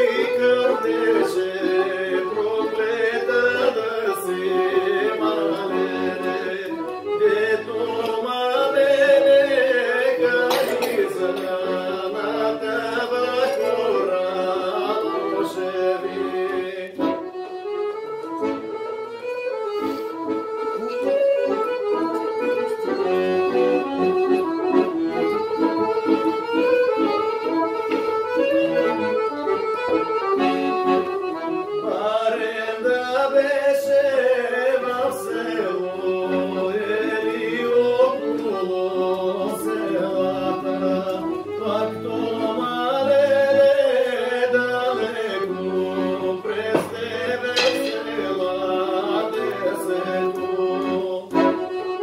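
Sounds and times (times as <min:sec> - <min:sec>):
man singing: 0:00.0 - 0:17.3, 0:31.8 - 0:52.0
accordion playing lively tune: 0:00.0 - 0:52.0.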